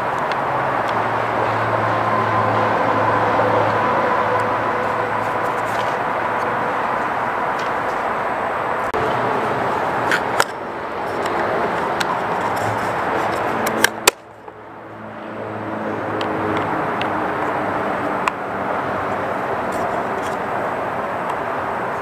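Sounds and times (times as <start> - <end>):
outdoor background noise: 0.0 - 22.0.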